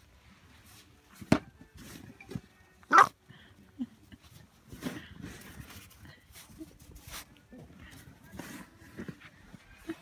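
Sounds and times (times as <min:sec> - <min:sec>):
puppy barking: 0:02.9 - 0:03.1.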